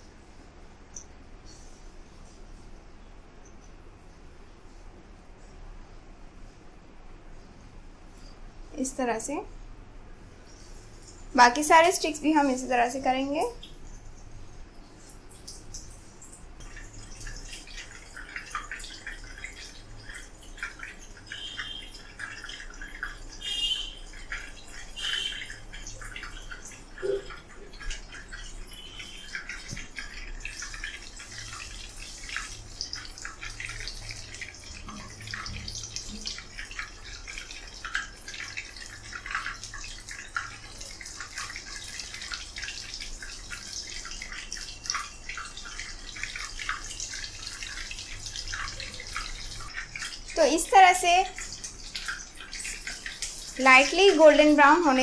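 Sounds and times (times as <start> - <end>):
food deep-frying in hot oil: 10.4 - 55.0.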